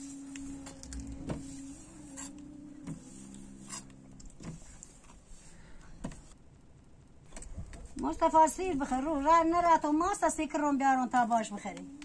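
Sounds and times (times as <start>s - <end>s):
metal spatula scraping griddle: 0.0s - 5.5s
low mechanical hum: 0.0s - 12.0s.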